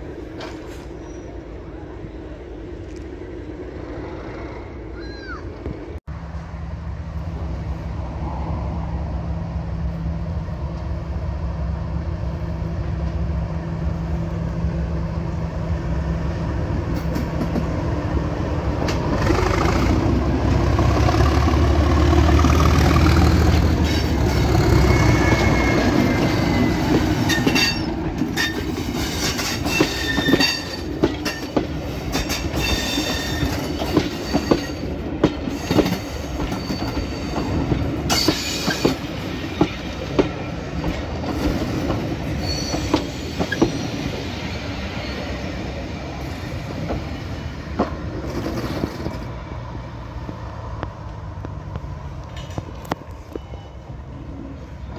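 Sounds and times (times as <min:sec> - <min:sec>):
diesel locomotive engine rumble: 0:00.0 - 0:54.9
train wheels clicking over rail joints: 0:16.9 - 0:17.8, 0:18.8 - 0:44.2
high wheel squeals: 0:23.6 - 0:30.9, 0:32.6 - 0:34.9, 0:35.5 - 0:39.0, 0:42.3 - 0:45.4.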